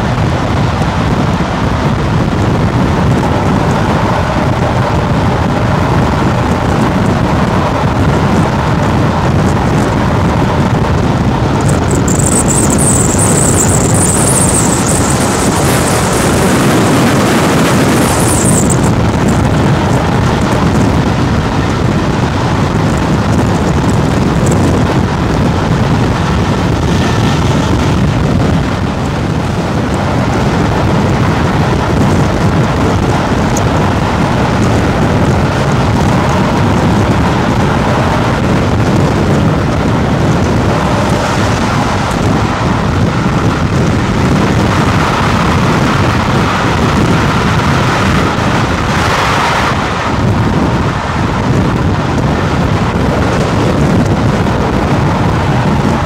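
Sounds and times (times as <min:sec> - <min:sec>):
train running at speed: 0:00.0 - 0:56.0.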